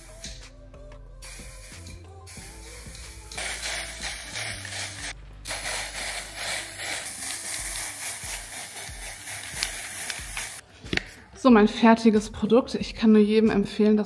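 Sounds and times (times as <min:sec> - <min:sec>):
aerosol spray can hissing: 0:01.2 - 0:10.6.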